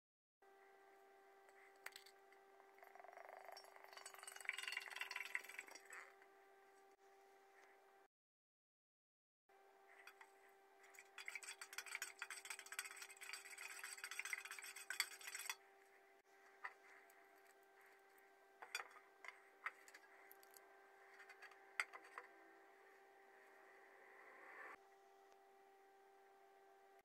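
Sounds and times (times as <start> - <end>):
faint steady hum: 0.4 - 8.1, 9.5 - 27.0
metal spoon scraping and clinking: 10.0 - 15.6, 18.6 - 22.3.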